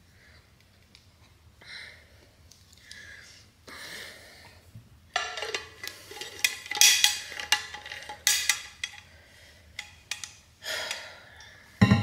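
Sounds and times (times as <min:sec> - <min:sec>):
dishes clattering and clinking: 0:05.2 - 0:09.0.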